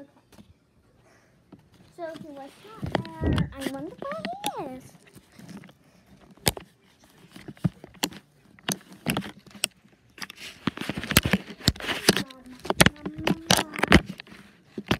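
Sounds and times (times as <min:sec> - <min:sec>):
rustling: 0:00.3 - 0:14.9
phone handling clicks and knocks: 0:06.3 - 0:06.7, 0:07.3 - 0:14.9.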